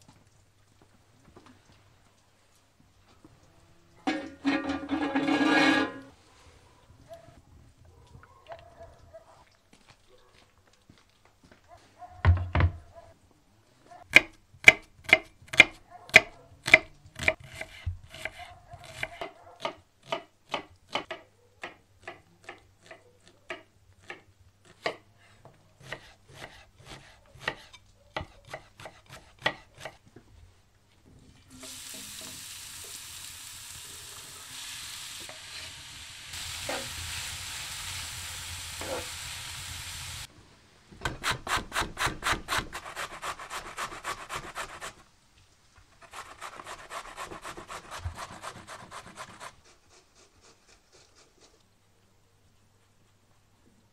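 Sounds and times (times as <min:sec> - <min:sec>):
onion sizzling in hot oil: 0:04.0 - 0:06.1, 0:31.4 - 0:40.3
spatula scraping in pan: 0:04.1 - 0:06.4, 0:31.6 - 0:40.3
thump: 0:12.2 - 0:12.9
knife chopping on cutting board: 0:25.8 - 0:30.0.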